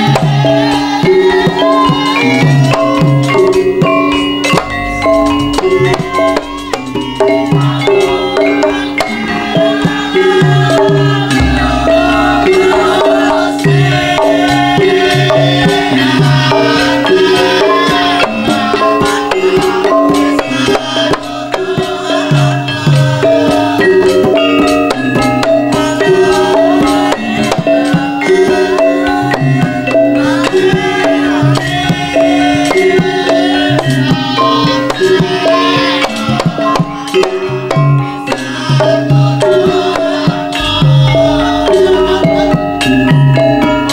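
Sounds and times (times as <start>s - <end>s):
ringing metallophone notes: 0.0s - 43.9s
hand-drum strokes: 1.9s - 43.9s
sliding melody line: 11.3s - 14.4s.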